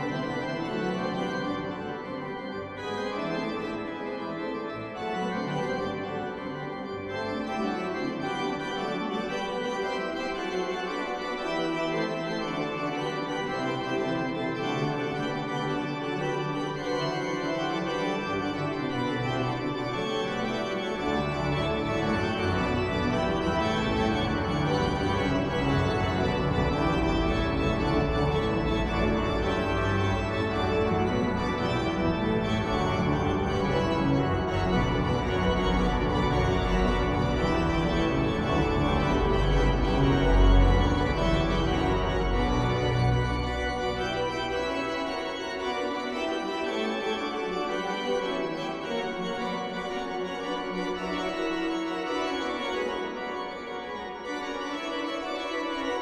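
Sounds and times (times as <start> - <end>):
pipe organ chords: 0.0 - 56.0
deep organ pedal bass: 20.8 - 45.2.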